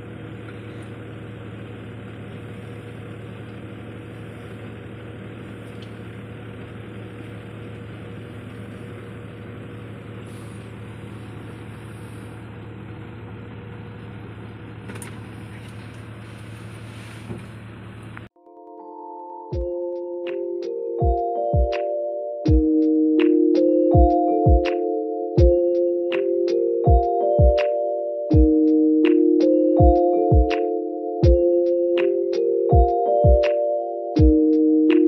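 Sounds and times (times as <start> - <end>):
car engine hum inside cabin: 0.0 - 18.4.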